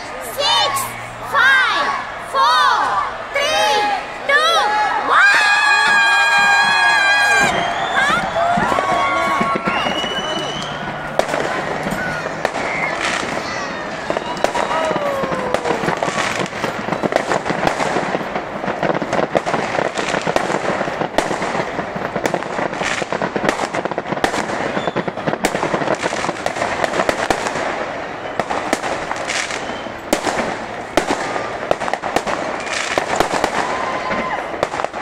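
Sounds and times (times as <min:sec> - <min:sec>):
fireworks crackling and banging: 0:00.0 - 0:35.0.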